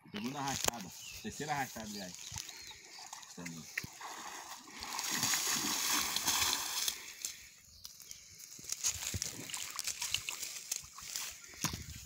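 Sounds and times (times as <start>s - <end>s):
water splashing and sloshing: 2.2s - 7.4s, 9.0s - 12.0s.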